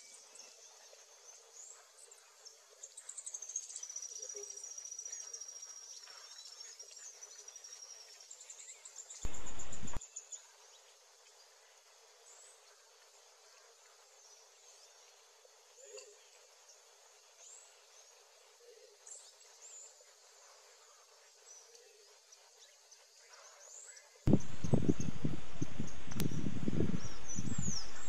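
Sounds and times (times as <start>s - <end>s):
hummingbird high trill: 9.3s - 10.0s, 24.3s - 28.0s.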